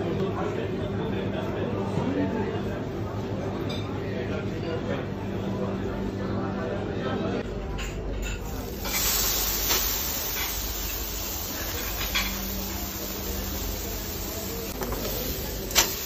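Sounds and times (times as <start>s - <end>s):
fish sizzling on grill: 8.4s - 16.0s.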